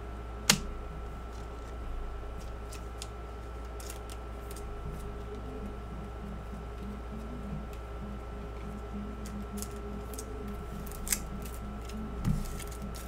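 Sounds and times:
steady faint hum: 0.0 - 13.0
soft rustles of card wrapper: 8.6 - 13.0.

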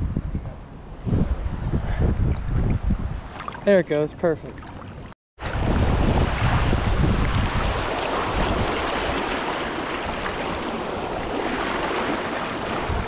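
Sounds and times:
river water rushing: 7.6 - 13.0.

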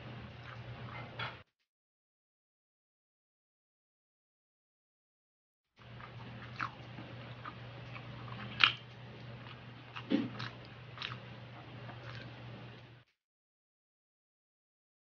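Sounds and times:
steady low hum: 0.0 - 1.5, 5.8 - 13.2
chewing with wet clicks: 0.3 - 1.3, 5.8 - 12.9.

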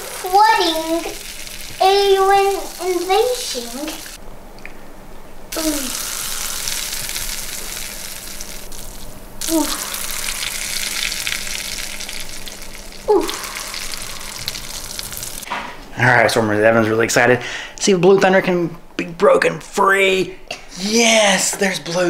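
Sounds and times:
crackling fizz of foaming: 0.0 - 4.2, 5.5 - 15.5.

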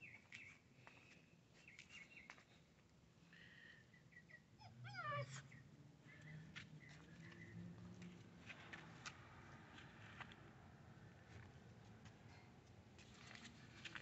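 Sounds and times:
puppy whimpering: 4.6 - 5.5.

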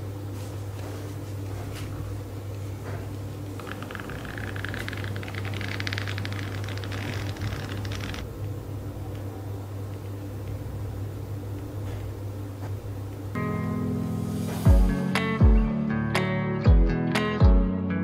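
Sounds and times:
steady low hum: 0.0 - 16.1
flipbook pages riffling: 3.6 - 8.2.

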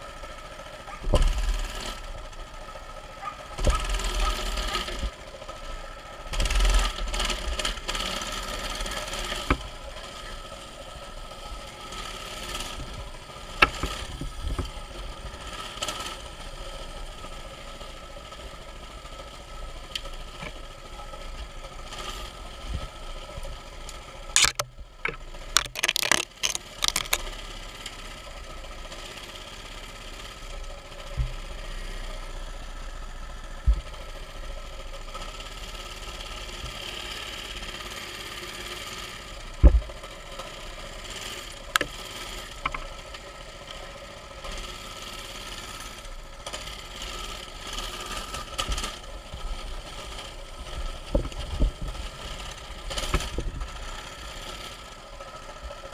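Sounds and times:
small bike engine running: 0.0 - 55.9
bike knocking and rattling: 24.3 - 27.2, 50.6 - 52.2.

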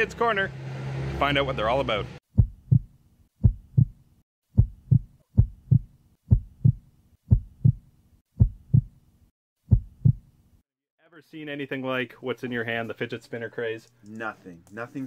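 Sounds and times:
heartbeat thumps: 2.3 - 9.0, 9.7 - 10.3.

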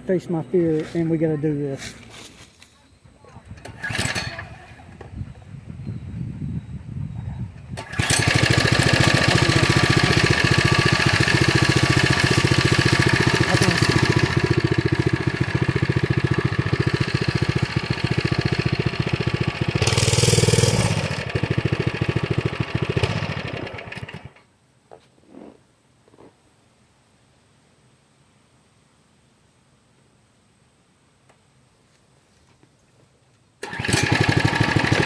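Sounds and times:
small gas engine revving: 3.6 - 5.1, 7.7 - 24.4, 33.6 - 35.0.

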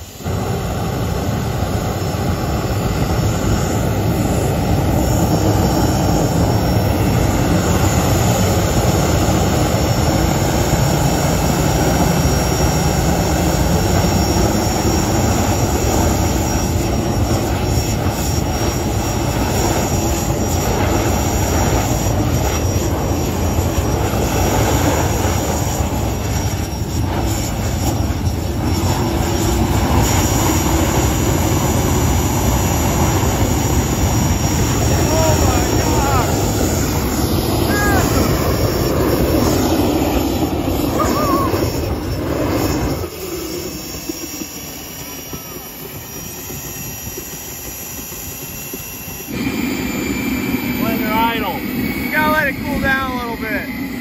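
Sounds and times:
jet engine rushing and whining: 0.0 - 54.0.

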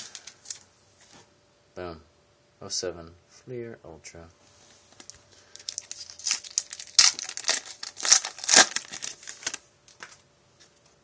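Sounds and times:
foil wrapper crinkling: 5.0 - 10.2.

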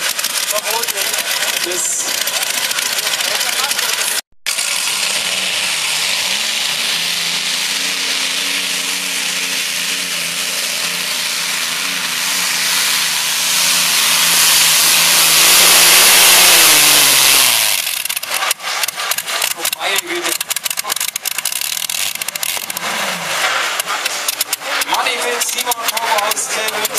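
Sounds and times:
tractor engine running at full power: 0.0 - 26.9
sharp crackling pops: 17.6 - 26.9.

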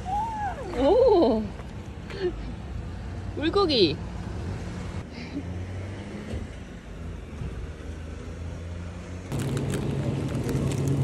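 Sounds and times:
vehicle engine humming: 6.4 - 11.0.

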